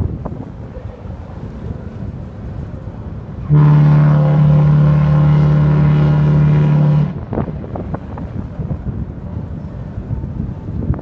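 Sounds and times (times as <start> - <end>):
wind buffeting microphone: 0.0 - 11.0
deep ship horn blast: 3.4 - 7.7.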